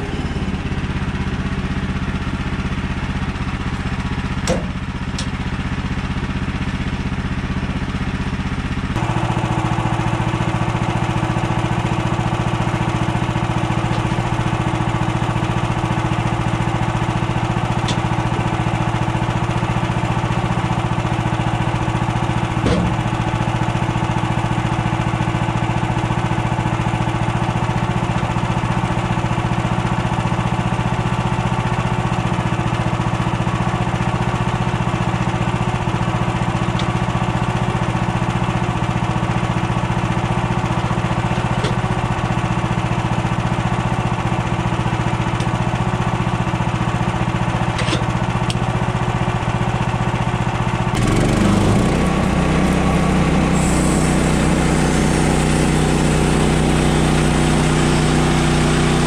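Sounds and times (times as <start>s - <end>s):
gas engine idling: 0.0s - 59.0s
single knock: 4.4s - 5.3s.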